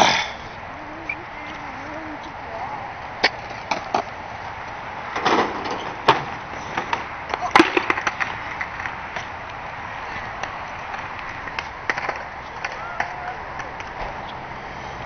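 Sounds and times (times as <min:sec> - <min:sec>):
skateboard wheels on concrete: 0:00.0 - 0:15.0
skateboard clacks: 0:03.2 - 0:04.1, 0:05.1 - 0:14.5.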